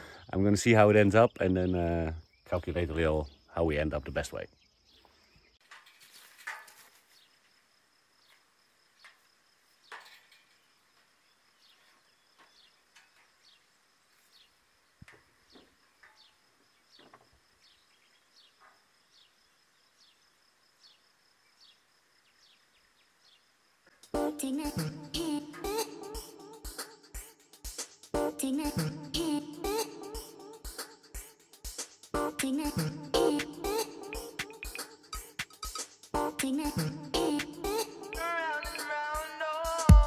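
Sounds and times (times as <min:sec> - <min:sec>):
bird chirping: 0:00.0 - 0:06.2, 0:09.8 - 0:23.6, 0:32.8 - 0:39.0
insect buzz: 0:04.5 - 0:39.9
loud music: 0:32.2 - 0:40.0.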